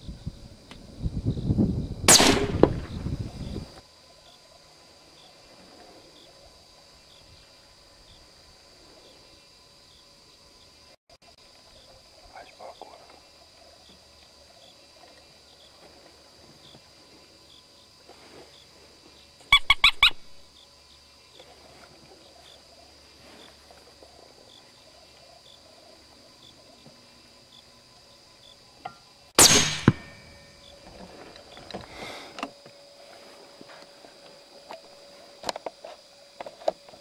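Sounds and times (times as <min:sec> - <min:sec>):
insects trilling: 0:00.0 - 0:37.0
rifle shot: 0:02.1 - 0:03.0, 0:29.4 - 0:30.5
sharp pitched squeaks: 0:19.5 - 0:20.3.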